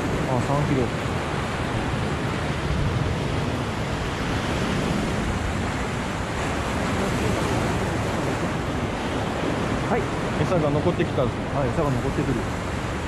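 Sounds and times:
sea waves breaking on rocks: 0.0 - 13.0
wind buffeting microphone: 0.0 - 13.0.

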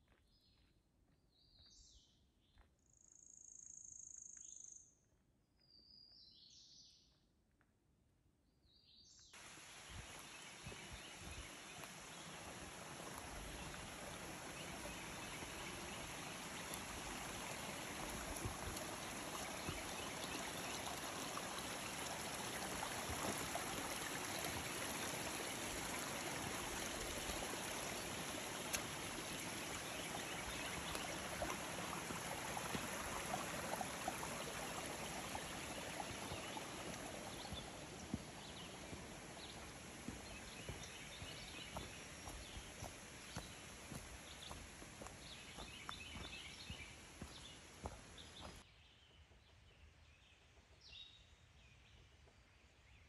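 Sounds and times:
mountain stream running: 9.4 - 48.6.

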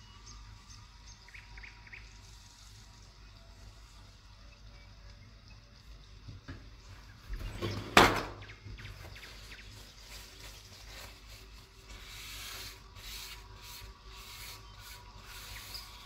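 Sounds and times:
paper towel rubbing pan: 9.0 - 16.0.

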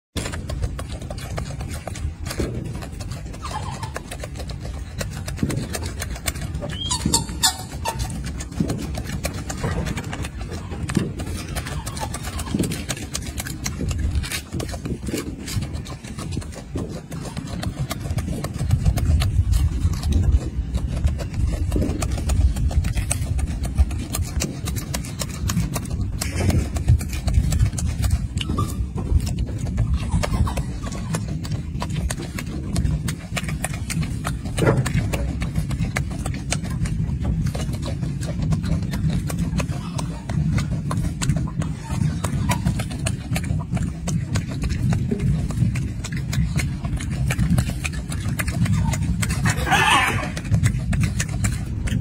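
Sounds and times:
monkey chewing and lip-smacking: 0.1 - 52.0
steady low rumble: 0.2 - 52.0.

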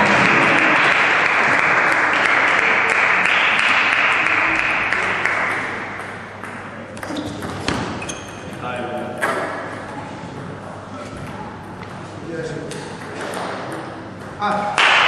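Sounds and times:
spectators applauding: 0.0 - 6.0, 14.8 - 15.0.

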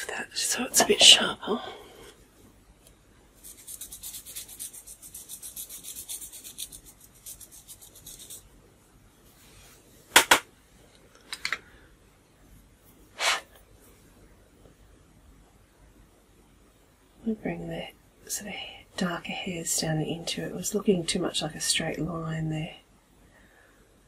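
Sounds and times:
pencil rasping on sharpener: 3.4 - 8.4.

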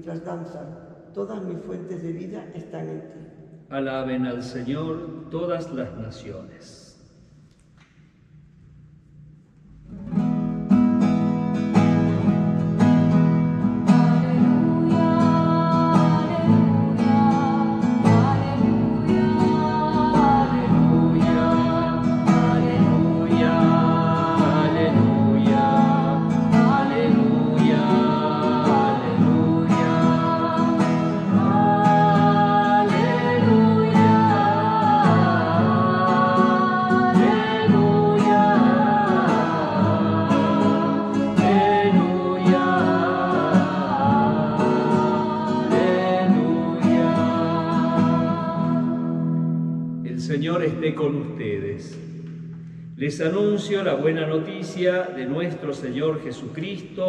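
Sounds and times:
acoustic guitar strumming: 9.7 - 50.8
person singing: 13.8 - 49.2.

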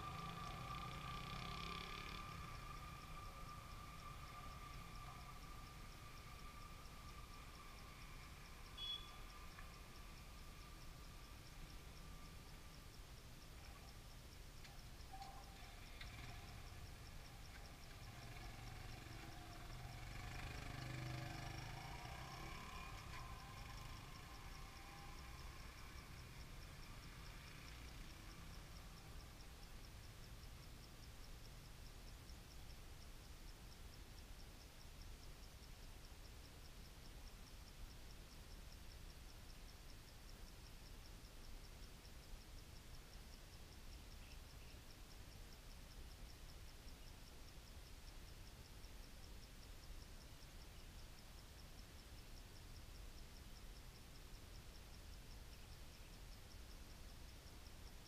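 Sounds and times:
distant motorbike engine: 0.0 - 12.8, 15.4 - 29.4
insects chirring: 0.0 - 58.0.

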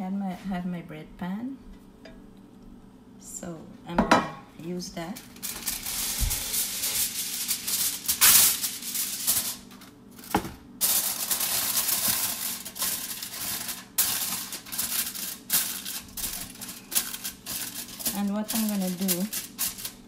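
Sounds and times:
aluminium foil crinkling: 5.1 - 20.0.

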